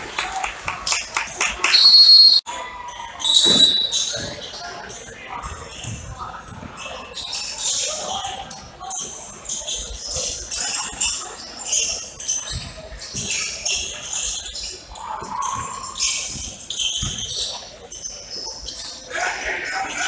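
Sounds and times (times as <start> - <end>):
chatter of people: 0.0 - 20.0
sneakers squeaking: 1.7 - 2.4, 3.2 - 4.6, 6.8 - 19.1.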